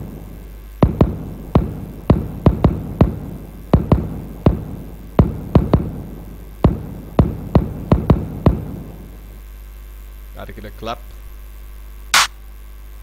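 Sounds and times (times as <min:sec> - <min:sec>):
low electrical hum: 0:00.0 - 0:13.0
punchy kick drum hits: 0:00.8 - 0:08.9.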